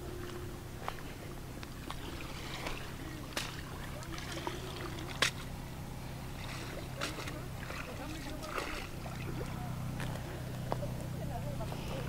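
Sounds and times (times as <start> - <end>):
shallow water splashing: 0.8 - 12.0
faint voices: 6.6 - 12.0.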